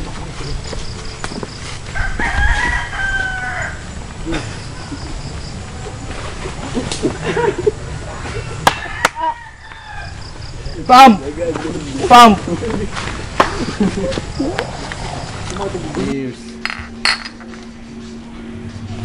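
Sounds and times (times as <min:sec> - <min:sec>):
rooster crowing: 0:01.9 - 0:04.0, 0:08.6 - 0:10.6.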